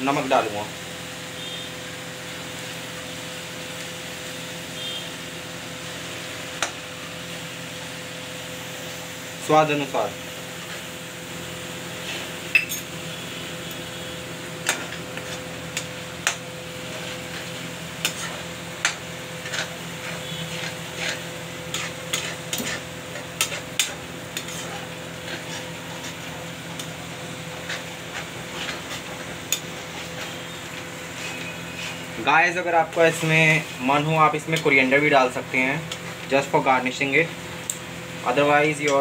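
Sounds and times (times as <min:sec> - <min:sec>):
metal spoon scraping a pan: 0:14.6 - 0:32.2.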